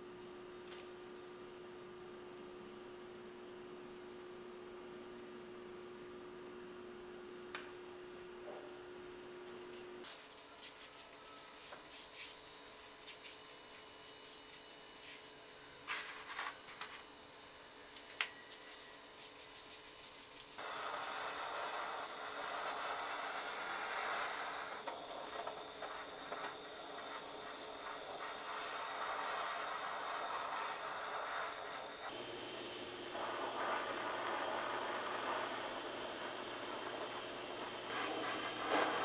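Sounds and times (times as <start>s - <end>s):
blowtorch hissing: 20.6s - 39.0s.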